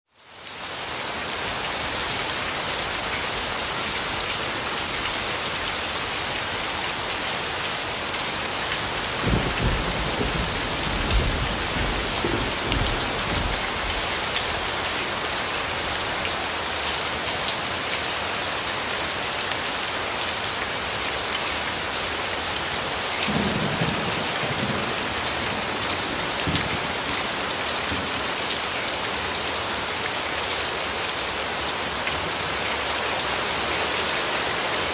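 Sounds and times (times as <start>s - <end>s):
heavy rain on hard surfaces: 0.1s - 34.9s
thunder rumbling: 9.1s - 14.3s, 23.3s - 28.2s.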